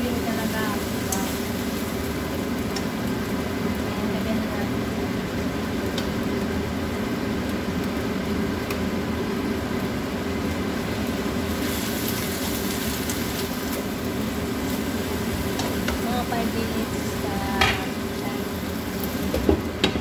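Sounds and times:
greens sizzling in a wok: 0.0 - 20.0
steady hum: 12.5 - 20.0.

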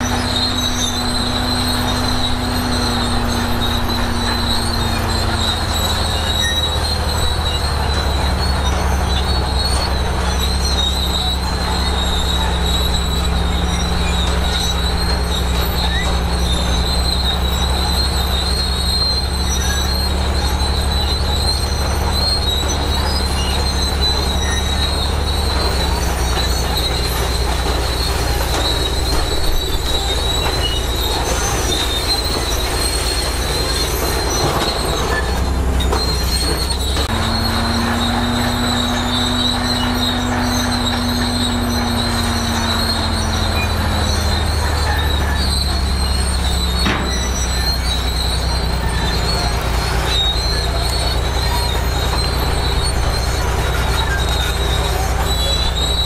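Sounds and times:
bulldozer diesel engine running: 0.0 - 56.0
steel tracks squealing: 0.0 - 56.0.

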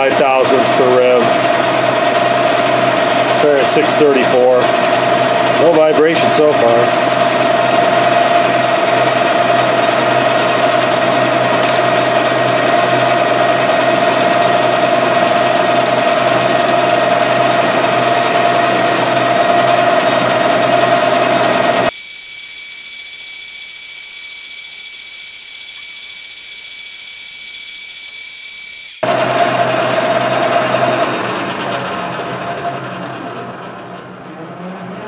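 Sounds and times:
metal lathe cutting: 0.0 - 31.7
thin high-pitched whine: 21.9 - 29.0.

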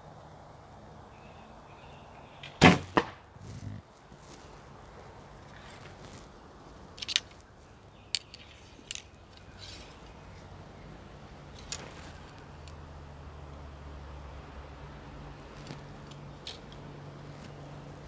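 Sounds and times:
clicks and taps of gear: 7.0 - 7.4, 8.1 - 10.0.

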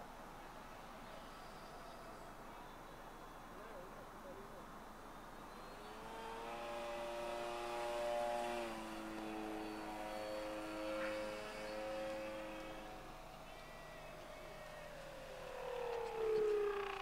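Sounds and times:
model plane motor whining: 5.9 - 13.4.

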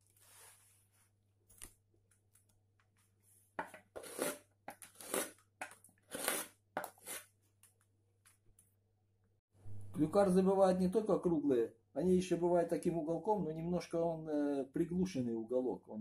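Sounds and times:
gouge scraping through wood: 3.6 - 5.4, 6.1 - 7.3.

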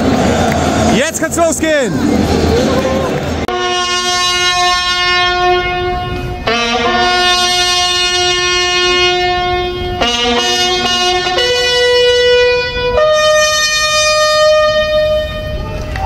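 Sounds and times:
slow horn-like music: 3.5 - 15.8.

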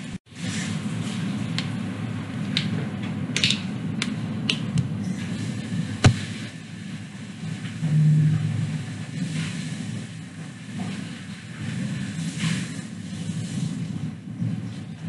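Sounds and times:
sharp knock: 6.0 - 6.3.

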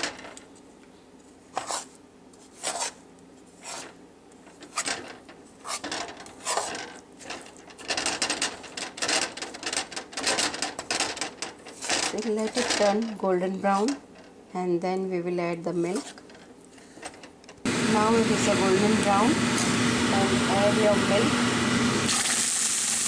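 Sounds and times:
metal spatula scraping pan: 4.6 - 14.2.

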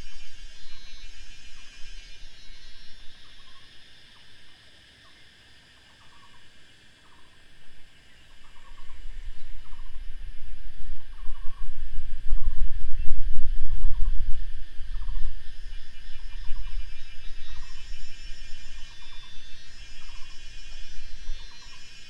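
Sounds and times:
low rumble: 8.8 - 21.3.

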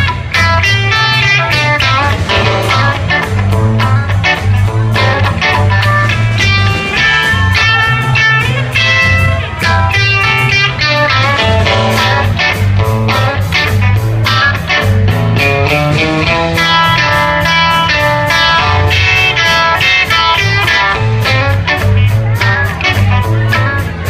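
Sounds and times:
drum kit: 0.0 - 24.0
electric bass: 0.0 - 24.0
electric guitar: 0.0 - 24.0.

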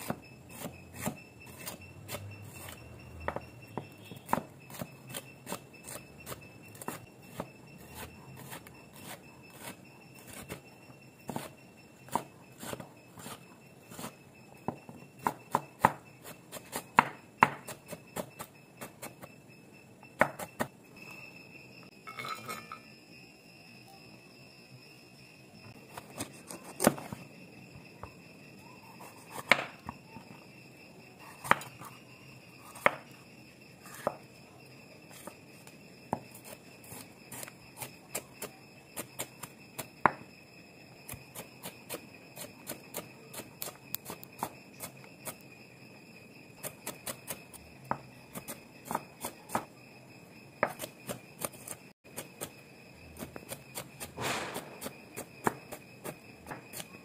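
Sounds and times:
knife chopping on wooden board: 14.7 - 16.0, 16.6 - 18.9, 29.3 - 29.7.

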